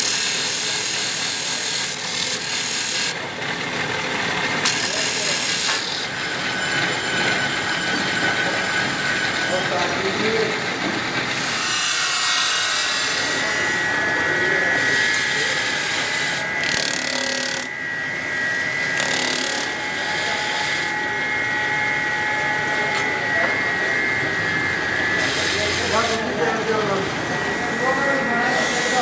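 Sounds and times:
blade hissing against wheel: 0.0s - 3.2s, 4.6s - 6.1s, 25.2s - 26.3s
buffing wheel whining: 0.0s - 29.0s.

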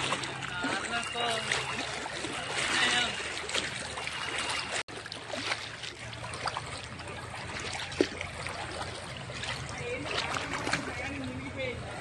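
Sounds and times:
small splashes: 0.0s - 11.6s
people wading through water: 0.0s - 12.0s.

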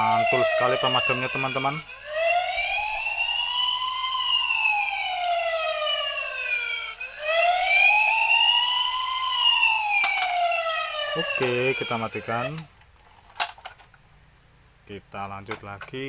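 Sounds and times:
toy siren wailing: 0.0s - 12.7s.

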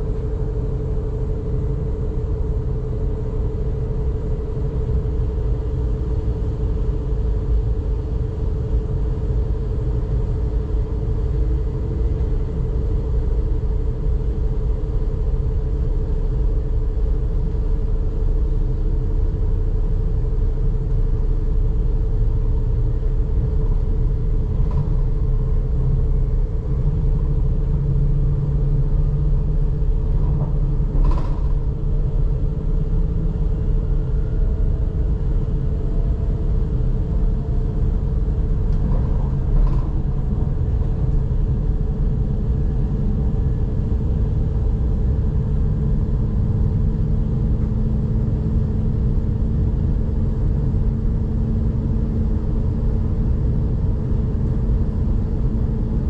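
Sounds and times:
constant hum: 0.0s - 56.0s
train wheels rumbling on track: 19.2s - 56.0s.

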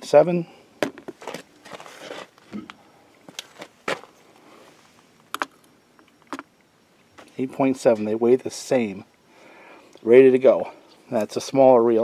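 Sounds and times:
rustling: 0.8s - 2.6s.

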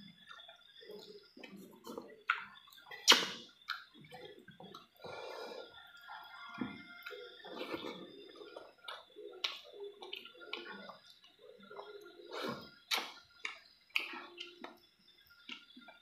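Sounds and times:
wet chewing and lip smacks: 0.2s - 5.0s, 5.9s - 16.0s
fingers squishing food: 6.9s - 12.2s, 12.8s - 14.8s.

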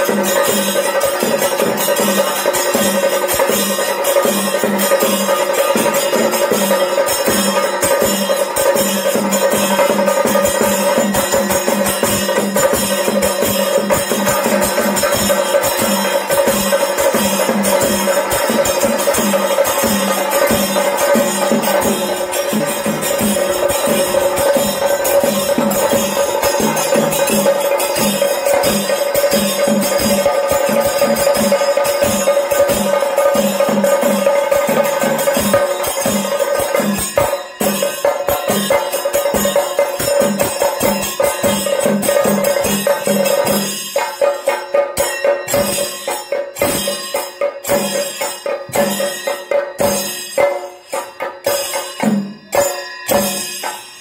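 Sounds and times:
held ringing note: 0.0s - 39.8s
drums beaten with sticks: 0.0s - 54.0s
hand cymbals clashing: 0.0s - 54.0s.

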